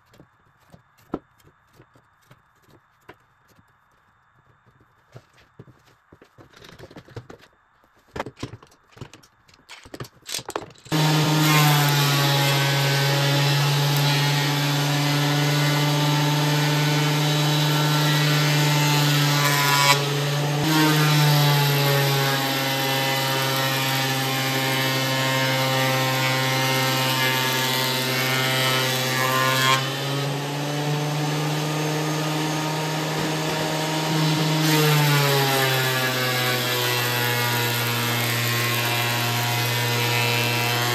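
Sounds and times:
thickness planer cutting wood: 10.9 - 40.9.

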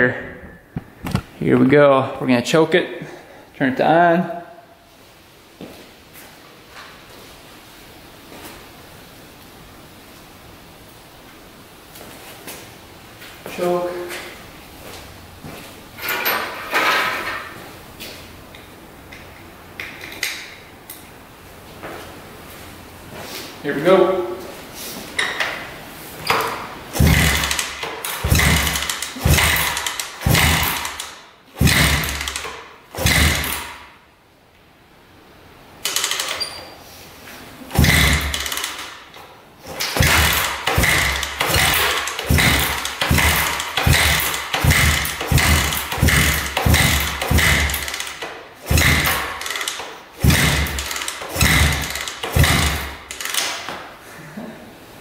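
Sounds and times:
motorcycle engine cranking: 26.2 - 33.8, 35.8 - 36.7, 37.7 - 53.7.

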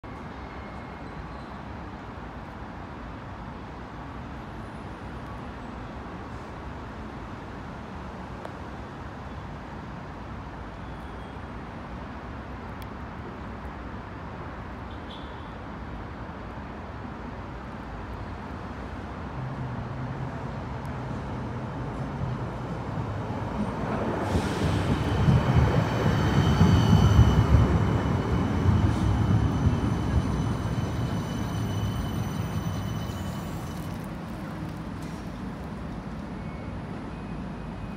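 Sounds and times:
electric tram passing: 17.4 - 37.9
rumble of tram wheels: 20.6 - 37.9
high-pitched whines: 26.0 - 34.2.

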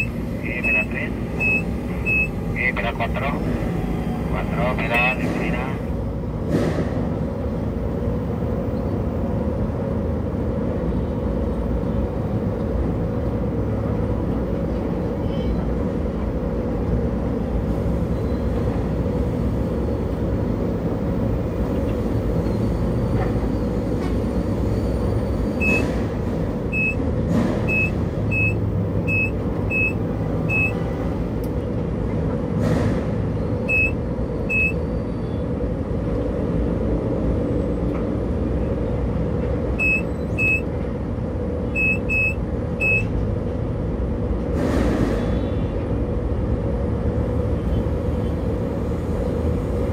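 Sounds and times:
short high-pitched beeps: 0.0 - 2.3, 27.7 - 30.8, 33.7 - 34.8, 39.8 - 40.6, 41.8 - 43.1
tower crane humming: 0.0 - 6.3
road traffic: 0.0 - 49.9.

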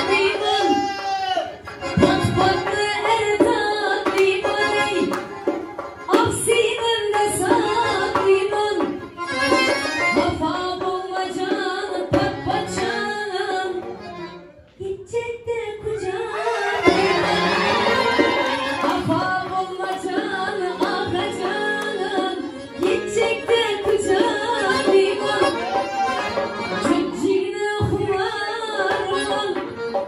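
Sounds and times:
accordion: 0.0 - 0.8, 1.5 - 15.0, 16.2 - 30.0
woman singing: 0.0 - 1.0, 1.8 - 5.4, 6.0 - 9.1, 10.1 - 14.1, 14.8 - 25.9, 26.8 - 29.8
hand drum percussion: 0.0 - 14.0, 16.7 - 30.0.

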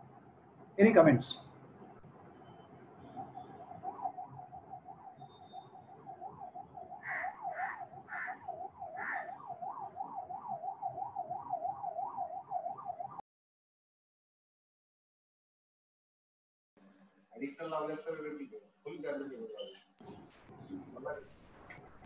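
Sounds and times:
emergency vehicle siren wailing: 2.0 - 13.2.

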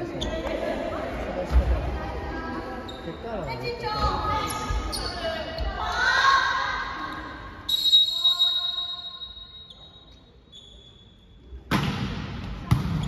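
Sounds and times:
volleyball struck with smack: 11.7 - 13.0.

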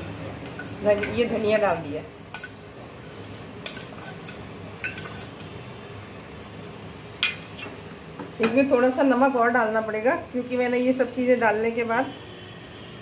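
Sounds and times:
spoon clinking on steel and pan: 3.3 - 5.5, 7.2 - 7.7.

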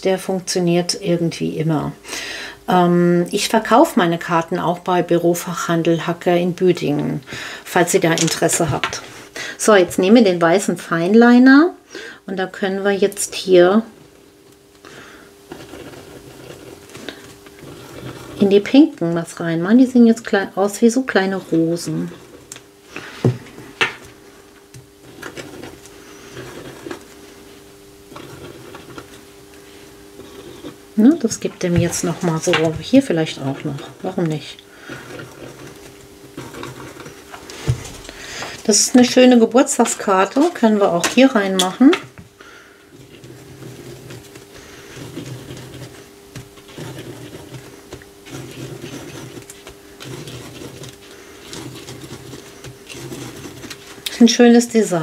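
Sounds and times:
faint steady hum: 0.0 - 55.0
pen scratching on paper: 15.5 - 18.8, 25.0 - 27.0, 28.1 - 29.1, 30.2 - 30.8, 31.4 - 37.2, 43.0 - 54.5
pen strokes on paper: 43.0 - 54.0.

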